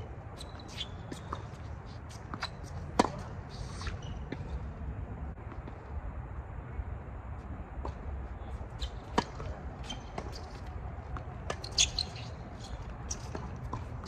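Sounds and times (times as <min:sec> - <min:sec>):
racket striking tennis ball: 0:02.2 - 0:04.5, 0:08.9 - 0:14.0.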